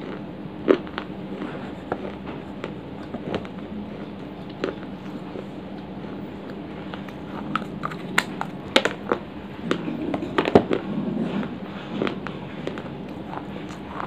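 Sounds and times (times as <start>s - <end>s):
crunching of chewed clay: 0.0s - 14.0s
faint low hum: 0.0s - 14.0s.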